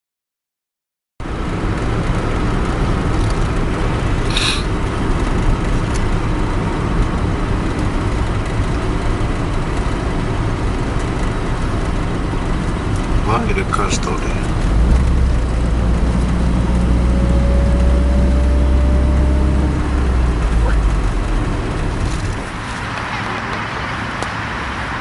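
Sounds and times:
engine and road noise in cabin: 1.2 - 25.0
brief high hiss: 4.3 - 4.7.

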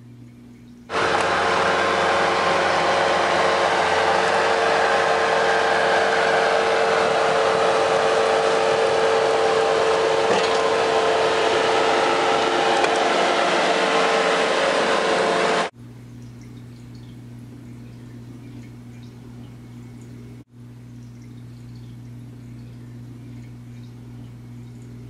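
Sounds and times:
loader engine and snowblower: 0.9 - 15.7.

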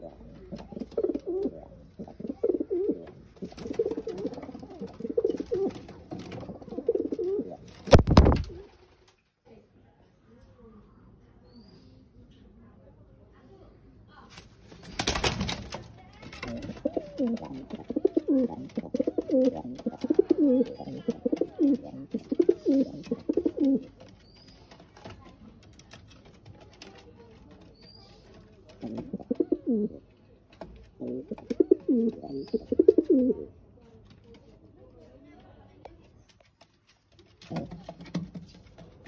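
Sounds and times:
pigeons cooing: 0.0 - 7.6, 16.5 - 24.0, 28.8 - 30.0, 31.0 - 33.5.

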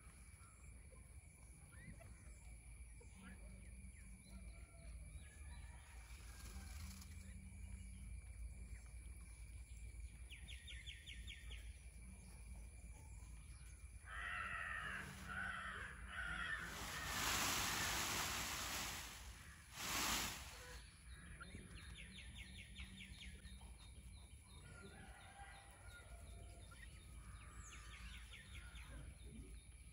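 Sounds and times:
loud rushing hiss: 16.5 - 20.9.

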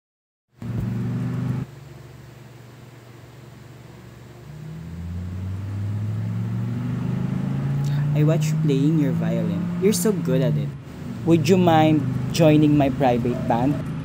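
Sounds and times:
vehicle engine humming: 0.6 - 2.0, 3.6 - 14.0
low engine drone: 4.1 - 14.0.

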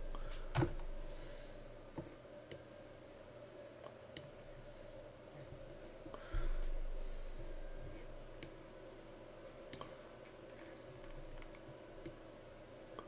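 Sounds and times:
faint steady hum: 0.0 - 13.0
computer mouse clicks: 4.2 - 4.4, 8.4 - 8.6, 10.5 - 12.2.

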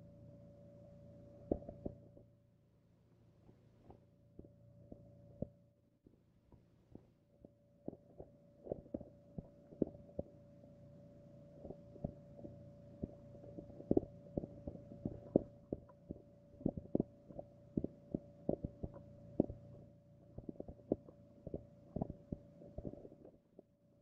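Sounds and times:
steady low hum: 0.0 - 24.0
dull underwater knocks and clicks: 1.5 - 2.3, 6.5 - 10.6, 11.5 - 23.8.

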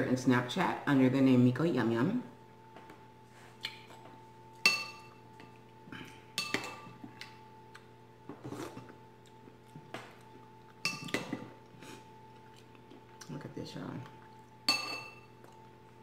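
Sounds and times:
spoon clinking against ceramic bowl: 4.6 - 5.2, 6.4 - 6.9, 10.8 - 11.4, 14.7 - 15.3.

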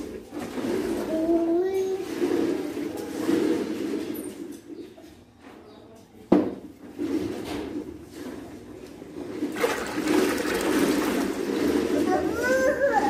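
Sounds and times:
water pouring into batter: 9.6 - 11.6.

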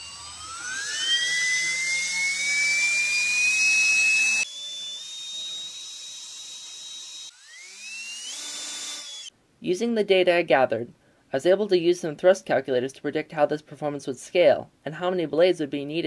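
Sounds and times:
ducted fan whining: 0.0 - 9.3.

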